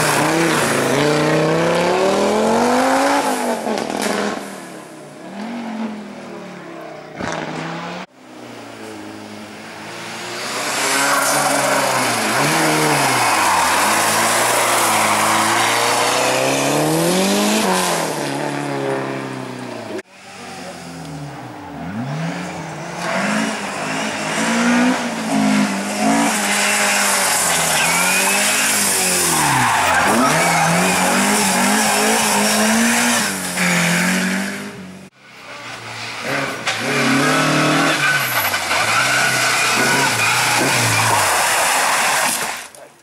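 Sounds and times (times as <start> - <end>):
car revving hard: 0.0 - 4.4, 10.2 - 20.4, 21.8 - 35.1, 36.2 - 42.0
rally car engines racing: 0.0 - 43.0.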